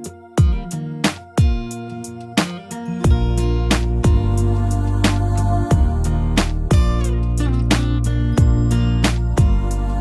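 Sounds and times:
slow song with guitar and beat: 0.0s - 10.0s.

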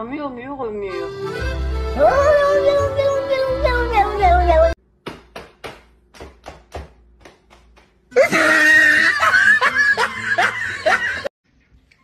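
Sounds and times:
hand claps: 5.1s - 8.1s
loud laughter with yelps: 8.2s - 11.3s.

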